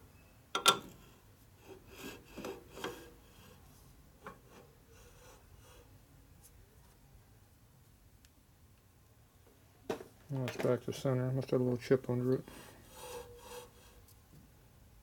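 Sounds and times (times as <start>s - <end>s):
metal scraping and tapping on metal: 2.3s - 3.1s.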